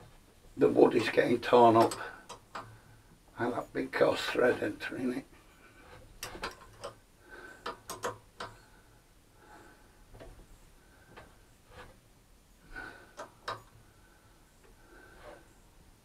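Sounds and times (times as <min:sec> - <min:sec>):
insert threading into wood: 0:00.9 - 0:03.6, 0:05.7 - 0:07.0, 0:07.6 - 0:08.7.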